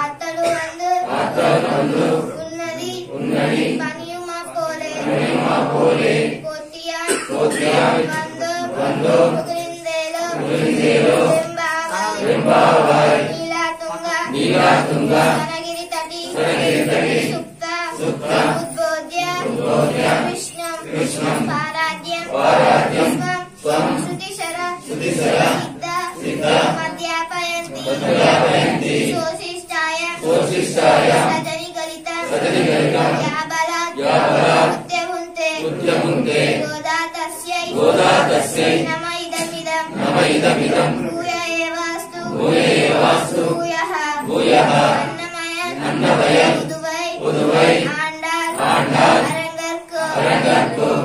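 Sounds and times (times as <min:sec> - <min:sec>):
girl singing into a microphone: 0:00.0 - 0:01.4, 0:02.2 - 0:03.2, 0:03.8 - 0:05.0, 0:06.4 - 0:10.5, 0:11.2 - 0:12.2, 0:13.2 - 0:14.3, 0:15.2 - 0:22.4, 0:23.1 - 0:28.0, 0:29.1 - 0:30.3, 0:31.2 - 0:32.3, 0:36.7 - 0:37.8, 0:38.8 - 0:40.0, 0:41.0 - 0:42.4, 0:43.5 - 0:44.3, 0:45.0 - 0:45.8, 0:46.5 - 0:47.2, 0:47.8 - 0:50.2.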